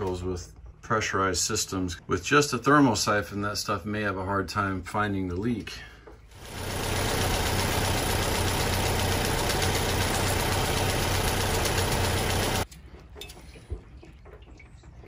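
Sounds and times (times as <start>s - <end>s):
car engine idling: 6.4s - 12.6s.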